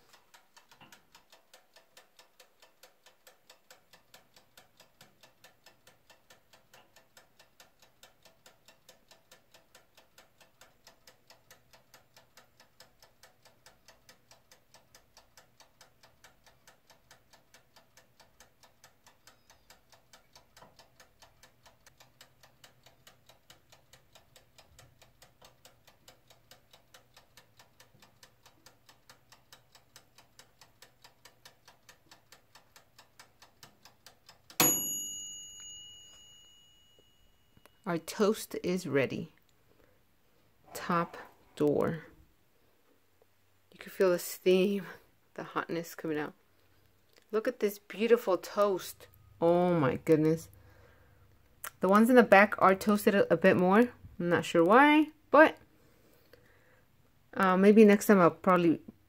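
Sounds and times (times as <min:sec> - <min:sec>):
dial timer ticking faintly: 0:00.0 - 0:59.0.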